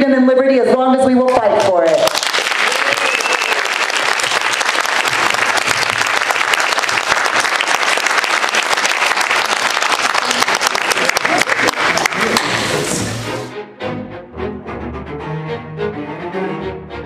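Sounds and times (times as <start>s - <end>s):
audience applauding: 1.6s - 13.2s.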